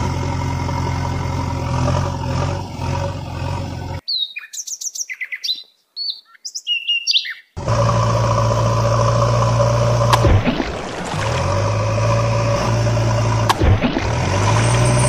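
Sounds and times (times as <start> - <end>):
engine drone: 0.0 - 4.0, 7.6 - 15.0
small birds chirping: 4.0 - 7.6.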